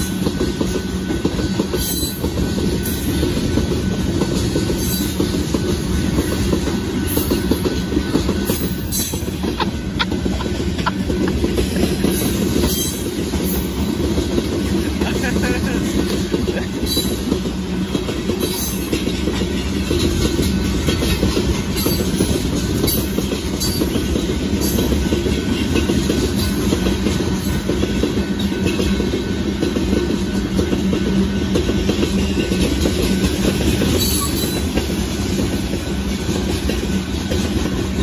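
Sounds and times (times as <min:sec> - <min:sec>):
train wheels rumbling on rail: 0:00.0 - 0:38.0
wheels clicking over rail joints: 0:00.0 - 0:38.0.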